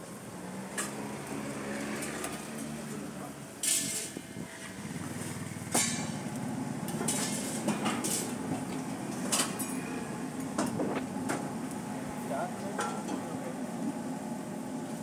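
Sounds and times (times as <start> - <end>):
metal spatula scraping griddle: 3.6 - 6.3, 6.9 - 8.4.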